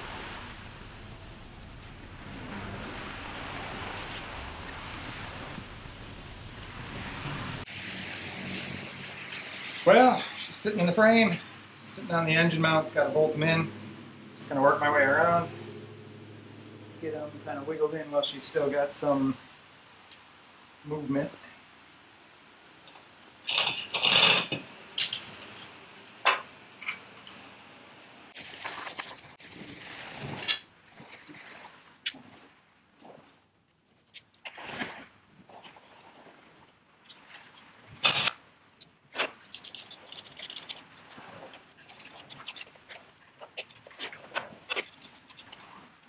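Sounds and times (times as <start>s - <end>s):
metal tools clanking: 23.5s - 25.6s, 38.0s - 38.4s, 39.2s - 46.0s.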